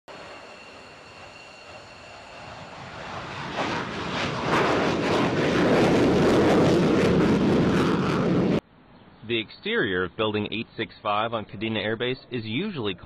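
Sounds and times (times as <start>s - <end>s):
jet engines at full afterburner: 0.1s - 8.6s.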